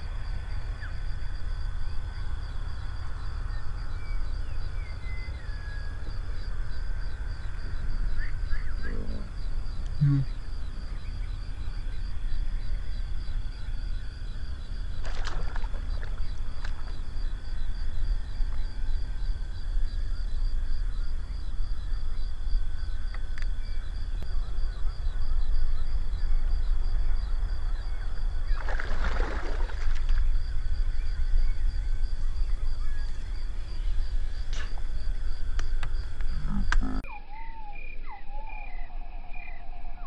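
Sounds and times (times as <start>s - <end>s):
steady low rumble: 0.0s - 28.6s, 29.9s - 37.1s.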